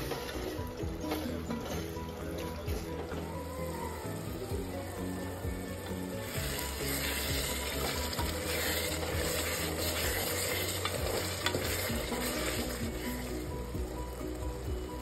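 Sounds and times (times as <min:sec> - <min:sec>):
gravy sizzling in oil: 0:03.5 - 0:15.0
ladle scraping a pot: 0:06.1 - 0:13.5.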